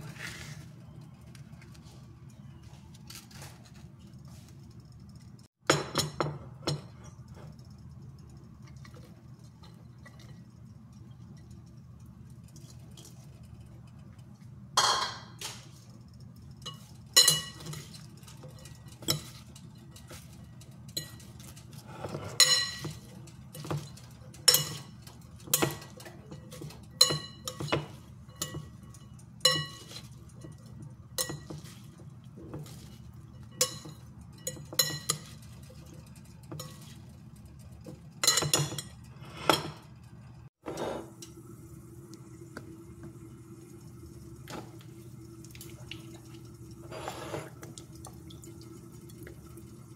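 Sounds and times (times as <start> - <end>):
low steady hum: 0.0 - 49.9
salad servers clinking glass bowl: 16.6 - 39.9.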